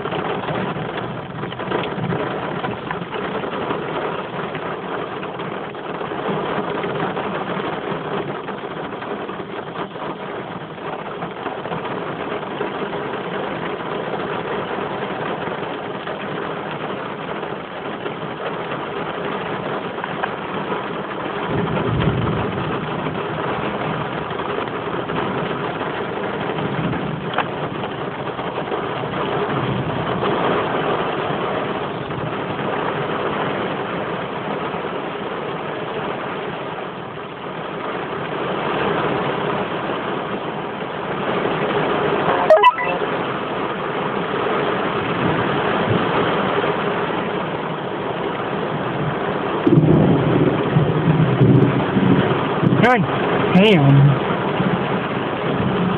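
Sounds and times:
heavy rain: 0:00.0 - 0:55.9
thunder rumbling: 0:21.4 - 0:24.4, 0:49.7 - 0:55.9.

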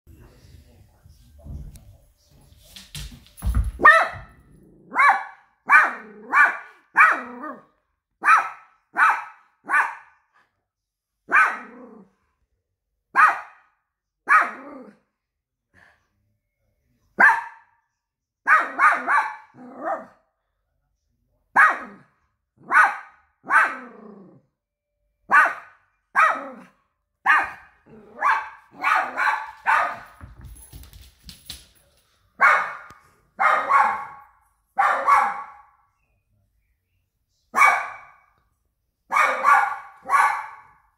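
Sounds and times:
dog barking: 0:03.8 - 0:10.3, 0:11.3 - 0:11.8, 0:13.1 - 0:15.0, 0:17.2 - 0:17.8, 0:18.4 - 0:20.2, 0:21.5 - 0:24.1, 0:25.3 - 0:30.2, 0:32.4 - 0:35.8, 0:37.5 - 0:38.3, 0:39.1 - 0:40.9.

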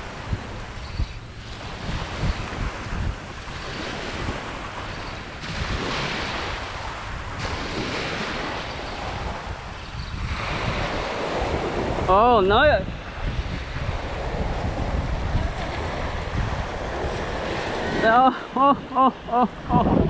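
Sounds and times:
waves washing on sand: 0:00.0 - 0:20.0
wind buffeting microphone: 0:00.0 - 0:20.0.

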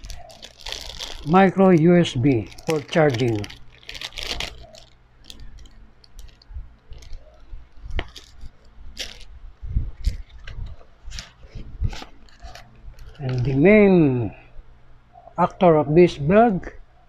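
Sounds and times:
plastic bag crinkling: 0:00.0 - 0:09.3, 0:09.9 - 0:13.7.

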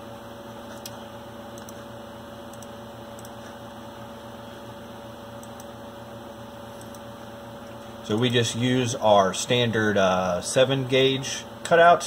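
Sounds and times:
electrical hum: 0:00.0 - 0:12.0
computer mouse clicks: 0:00.7 - 0:01.0, 0:01.6 - 0:01.8, 0:02.5 - 0:03.6, 0:05.4 - 0:05.7, 0:06.8 - 0:07.0.

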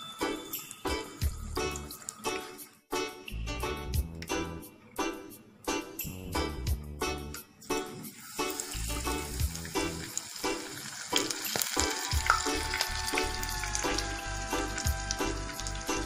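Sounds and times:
music with a steady beat: 0:00.1 - 0:08.0, 0:11.8 - 0:16.0
leaves deep-frying in oil: 0:07.9 - 0:16.0.

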